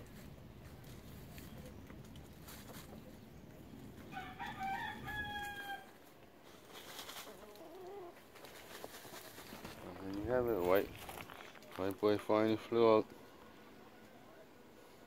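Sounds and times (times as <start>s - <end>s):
rooster crowing: 4.1s - 6.0s.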